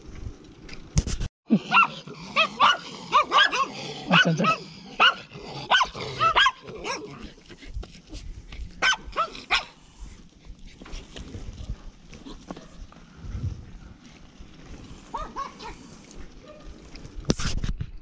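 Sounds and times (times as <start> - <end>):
small dog yapping: 1.6 - 7.1, 8.8 - 9.8, 15.1 - 15.8.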